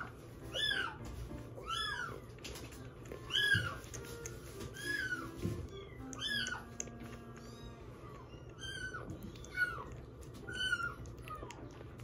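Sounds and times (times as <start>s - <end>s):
kitten mewing: 4.8s - 11.8s.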